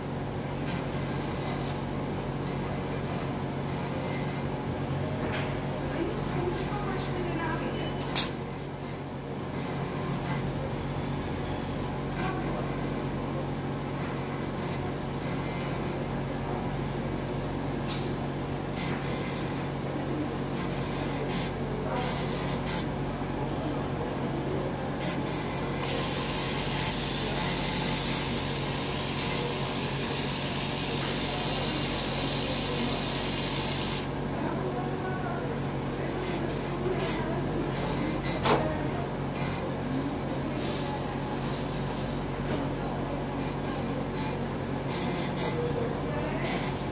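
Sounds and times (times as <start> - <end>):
robot mechanical hum: 25.0 - 34.1.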